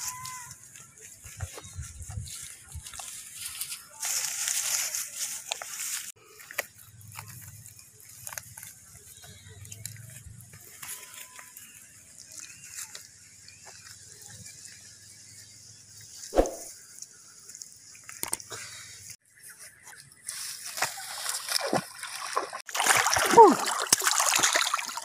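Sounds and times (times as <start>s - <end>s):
slap in mud: 16.4s - 16.7s.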